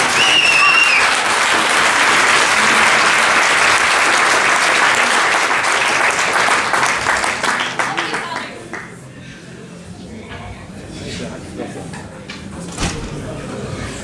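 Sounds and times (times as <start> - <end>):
short whistle: 0.0 - 1.1
audience applauding: 0.0 - 9.0.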